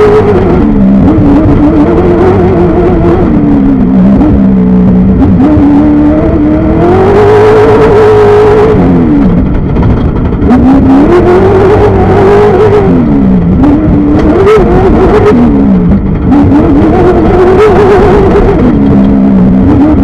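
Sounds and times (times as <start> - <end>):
race car engine under hard throttle: 0.0 - 20.0
rushing noise: 0.0 - 20.0
knocks and rattles: 8.4 - 12.7.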